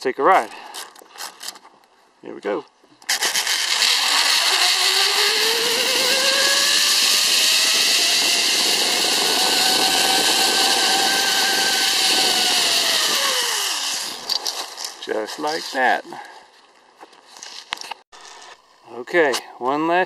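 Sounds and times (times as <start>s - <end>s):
zip-line pulley rolling on cable: 3.1s - 15.0s.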